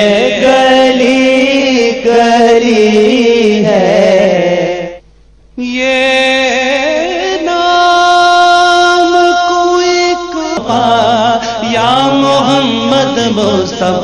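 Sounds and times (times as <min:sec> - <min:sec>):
lower voice part: 0:05.6 - 0:14.0
man singing long held note: 0:05.6 - 0:14.0.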